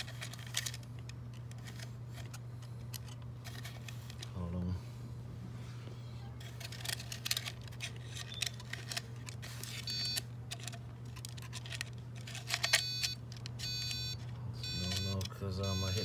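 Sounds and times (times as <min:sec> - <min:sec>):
hands handling plastic parts: 0:00.0 - 0:04.4, 0:06.4 - 0:16.0
steady low hum: 0:00.0 - 0:16.0
electronic beeping tone: 0:12.7 - 0:16.0.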